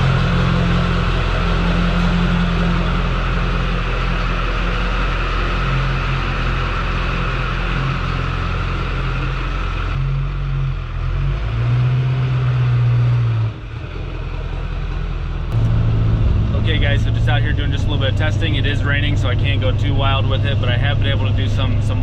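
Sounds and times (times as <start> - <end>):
high whine: 0.0 - 10.2, 15.5 - 22.0
diesel pickup engine running: 0.0 - 22.0.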